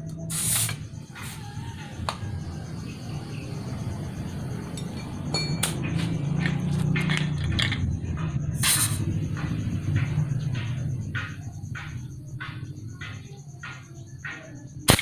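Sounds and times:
air hiss: 0:00.3 - 0:01.4, 0:08.6 - 0:09.1.

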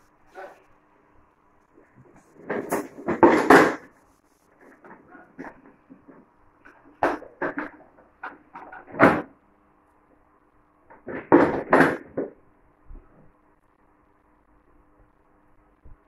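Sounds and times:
plastic toy car knocking and clattering: 0:02.4 - 0:03.9, 0:04.8 - 0:09.4, 0:10.9 - 0:12.4.

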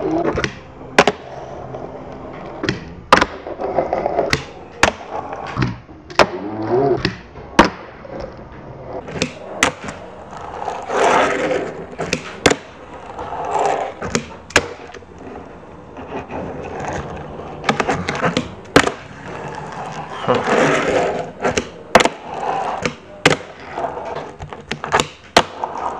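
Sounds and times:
small wheels rolling on table: 0:09.8 - 0:22.9, 0:23.5 - 0:25.9.

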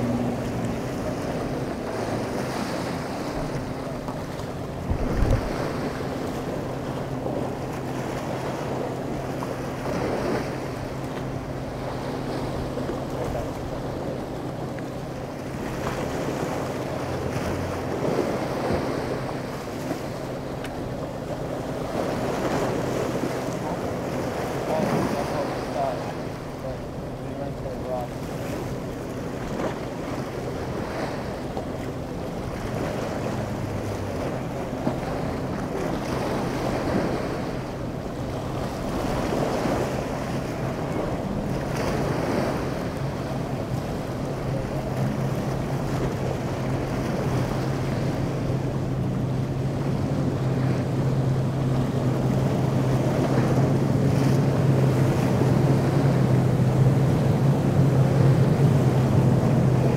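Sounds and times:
wind buffeting microphone: 0:00.0 - 0:27.4
boat engines humming: 0:00.0 - 0:59.9
choppy water wash: 0:00.0 - 0:59.9.

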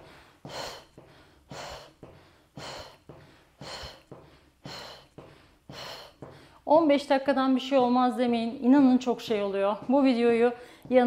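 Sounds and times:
woman breathing hard: 0:00.0 - 0:06.6, 0:10.5 - 0:11.0.

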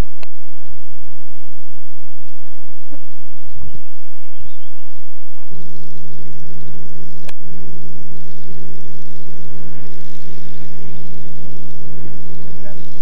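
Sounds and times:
loud low hum: 0:00.0 - 0:13.0
sharp click: 0:07.2 - 0:07.4.

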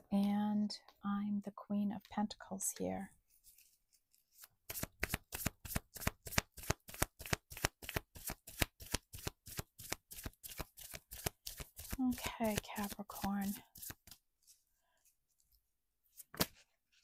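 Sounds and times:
cards being shuffled: 0:03.4 - 0:14.6.

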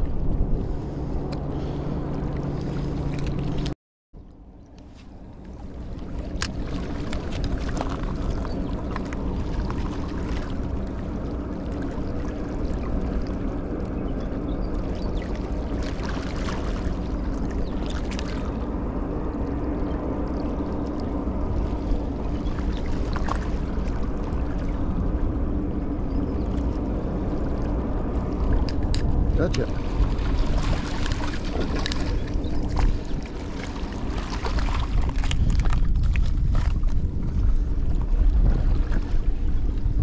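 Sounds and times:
constant drone: 0:00.0 - 0:40.0
steady low rumble: 0:00.0 - 0:40.0
waves lapping against rocks: 0:05.4 - 0:13.9, 0:14.7 - 0:18.7, 0:20.6 - 0:25.2, 0:26.4 - 0:40.0.

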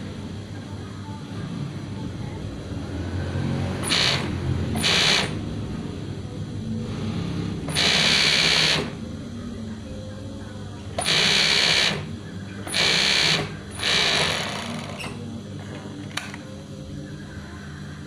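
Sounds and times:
motor humming: 0:03.8 - 0:05.4, 0:07.0 - 0:09.0, 0:11.0 - 0:16.6
sewing machine stitching: 0:03.8 - 0:05.4, 0:07.7 - 0:09.0, 0:11.0 - 0:12.1, 0:12.7 - 0:15.2.

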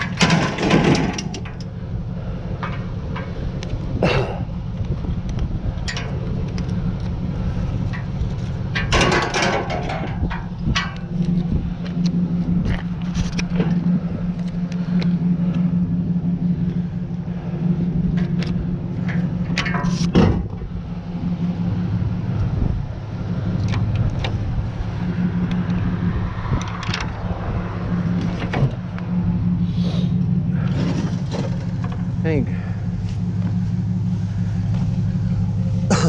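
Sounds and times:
knocks and clicks: 0:00.0 - 0:01.7, 0:07.9 - 0:15.2
truck engine idling: 0:00.0 - 0:36.0.

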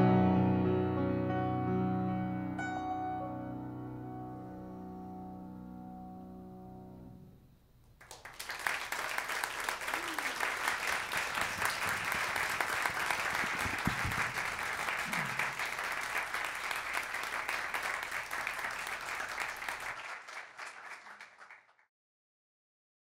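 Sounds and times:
audience applauding: 0:08.0 - 0:21.8.

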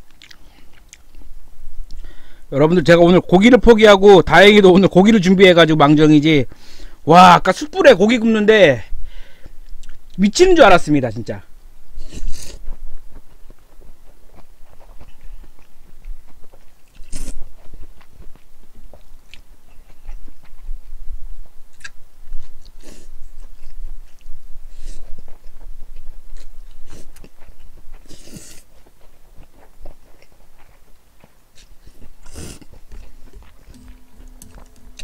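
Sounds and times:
chewing close to microphone: 0:00.1 - 0:01.3, 0:12.0 - 0:33.9
noodles being slurped: 0:31.8 - 0:32.8.

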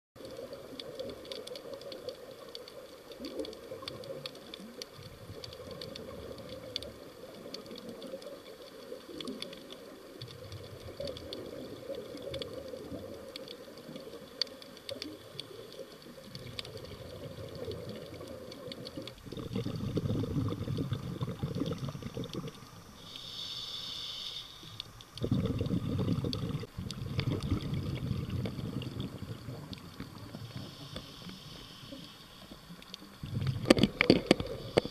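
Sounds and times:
underwater crackle of clicks: 0:00.2 - 0:34.9
regulator exhaust bubbles: 0:19.2 - 0:22.6, 0:25.2 - 0:30.3
diver inhaling hiss: 0:21.4 - 0:26.7, 0:30.2 - 0:32.8.

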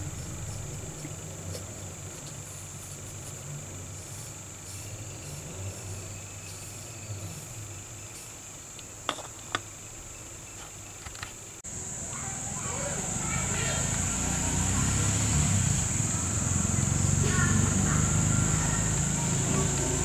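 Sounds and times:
low hum: 0:00.0 - 0:08.4
high-pitched insect-like trill: 0:00.0 - 0:09.1.

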